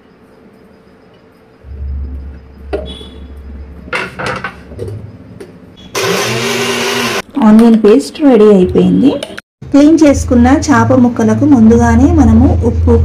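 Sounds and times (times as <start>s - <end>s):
mixer grinder whirring: 5.9s - 7.2s.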